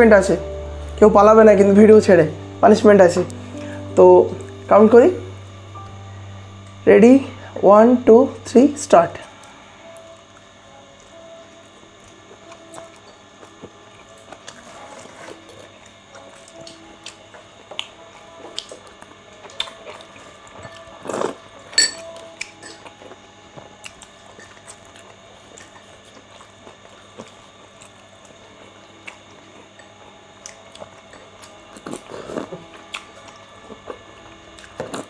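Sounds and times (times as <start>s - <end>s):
quiet chewing: 9.3s - 35.0s.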